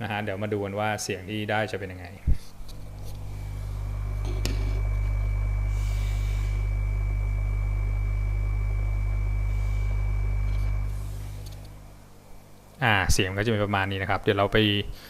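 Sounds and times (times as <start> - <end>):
air pump humming: 2.3 - 12.4.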